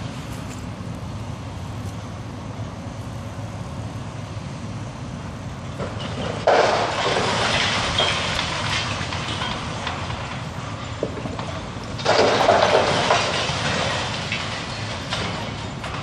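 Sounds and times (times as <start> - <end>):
crane engine rumble: 0.0 - 16.0
rubble crumbling down: 11.0 - 16.0.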